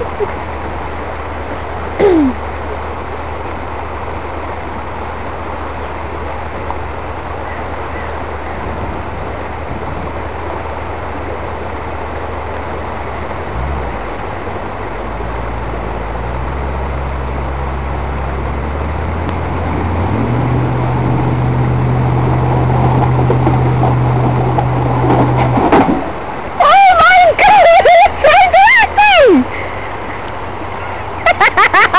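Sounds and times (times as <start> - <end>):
steady rushing noise: 0.0 - 31.9
engine revving: 13.4 - 26.0.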